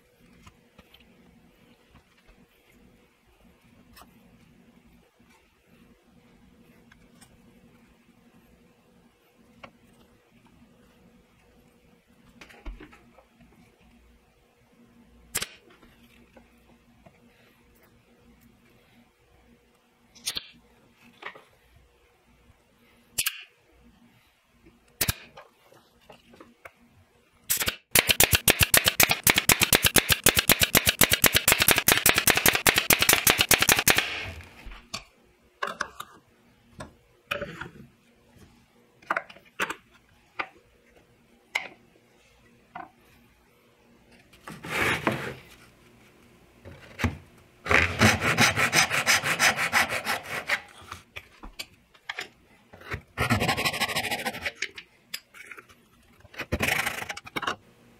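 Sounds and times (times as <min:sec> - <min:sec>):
brad nailer shots: 0:27.5 - 0:34.6
hand saw cutting wood: 0:47.7 - 0:50.7.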